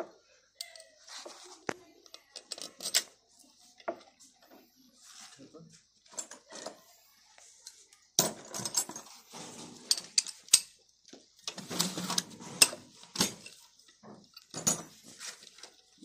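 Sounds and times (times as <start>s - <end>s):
metal tools clinking: 2.1s - 3.2s, 8.2s - 10.8s, 11.5s - 15.6s
metal scraping and rubbing: 8.8s - 10.6s, 11.5s - 13.6s.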